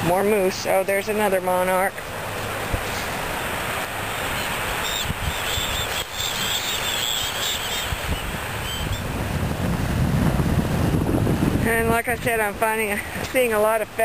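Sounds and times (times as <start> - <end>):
small waves lapping on shore: 0.0 - 14.0
wind buffeting microphone: 4.3 - 14.0.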